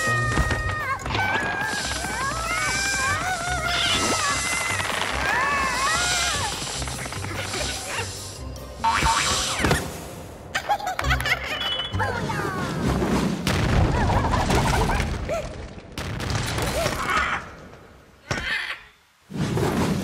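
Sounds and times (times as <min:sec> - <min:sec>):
background music: 0:00.0 - 0:14.4.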